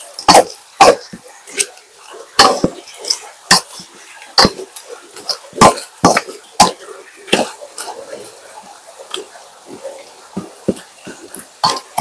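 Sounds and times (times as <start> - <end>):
sharp knocks and thuds: 2.4 - 2.8, 4.4 - 4.7, 10.3 - 12.0.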